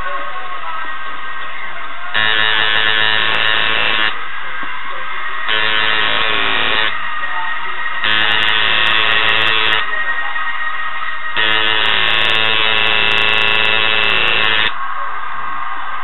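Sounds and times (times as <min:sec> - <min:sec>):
tattoo machine buzzing: 0:02.2 - 0:04.2, 0:05.5 - 0:07.0, 0:08.0 - 0:09.9, 0:11.4 - 0:14.8.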